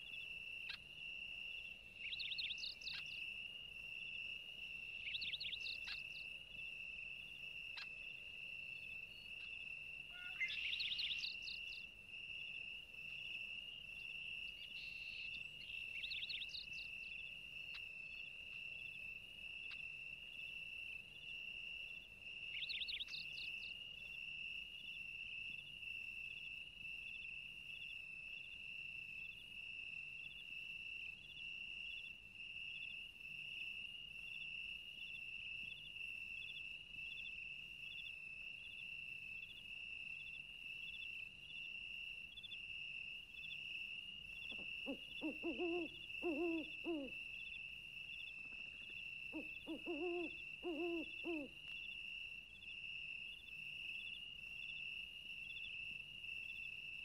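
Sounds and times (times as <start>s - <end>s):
bird chirp: 2.0s - 3.2s, 5.0s - 6.3s, 9.1s - 11.9s, 14.5s - 18.2s, 22.5s - 23.8s
low hooting bird calls: 10.1s - 11.4s, 44.4s - 47.2s, 48.8s - 51.6s.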